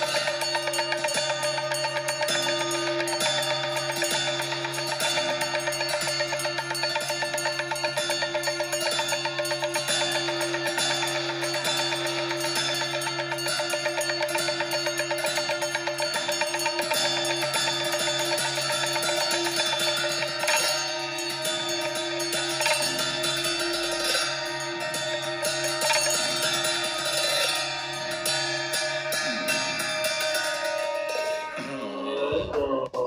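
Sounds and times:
large brass cymbals struck: 0.0s - 31.8s
held droning tones: 8.4s - 33.0s.

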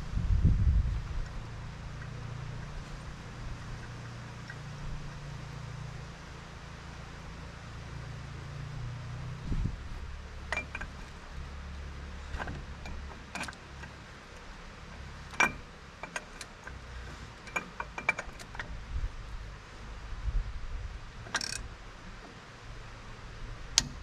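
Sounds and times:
ratchet tool metallic clicks: 21.2s - 21.7s.

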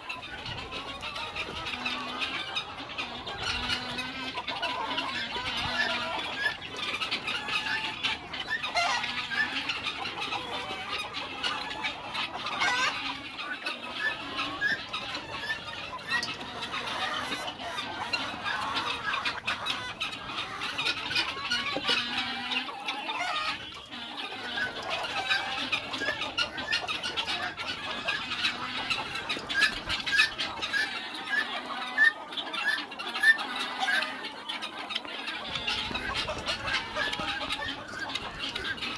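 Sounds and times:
chickens clucking and squawking: 0.0s - 38.9s.

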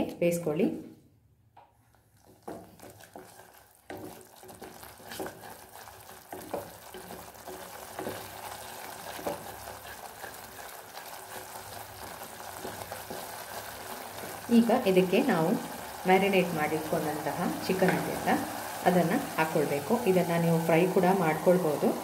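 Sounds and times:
masala sizzling in oil: 1.8s - 22.0s
wooden spatula scraping pan: 2.3s - 11.6s, 17.6s - 18.4s.

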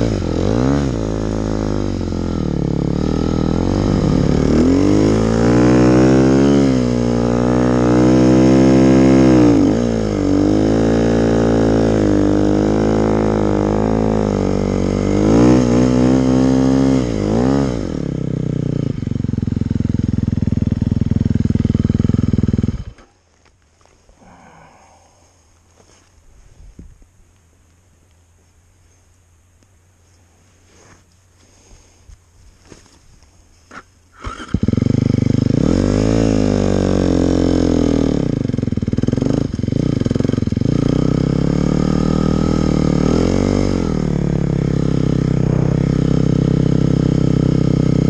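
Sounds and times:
snowmobile engine revving: 0.0s - 19.2s, 34.1s - 48.0s
engine idling: 44.0s - 48.0s.

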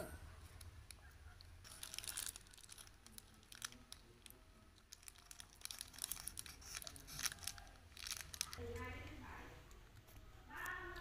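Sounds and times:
plastic wrappers crinkling: 0.5s - 9.2s.

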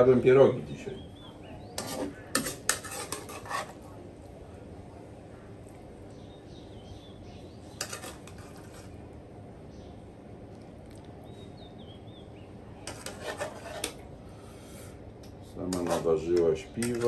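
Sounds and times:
steady low hum: 0.0s - 17.0s
bird chirping faintly: 6.0s - 7.8s.

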